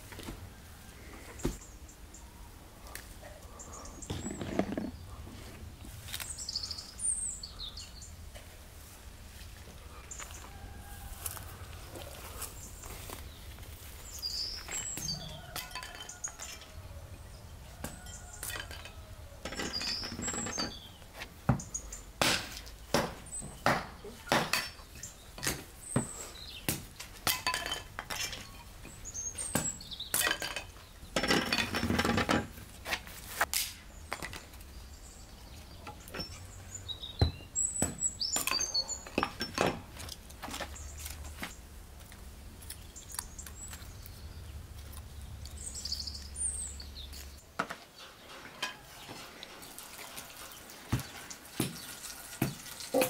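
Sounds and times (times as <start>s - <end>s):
birds chirping: 0.4s - 8.6s, 9.6s - 22.2s, 22.8s - 32.7s, 33.8s - 53.0s
hatchet chopping wood: 22.2s - 24.8s, 25.4s - 27.4s, 37.2s - 38.6s.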